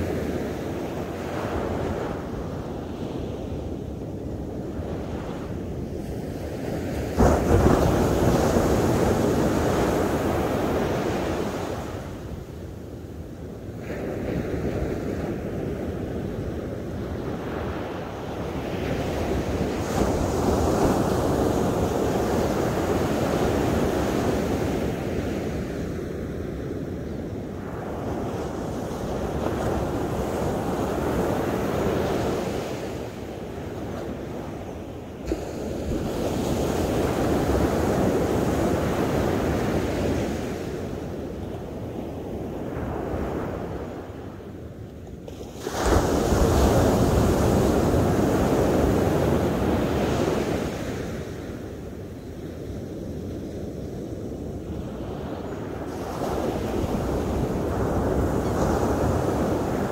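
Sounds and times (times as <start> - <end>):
surf breaking on sandy beach: 6.5 - 12.3, 45.3 - 51.9.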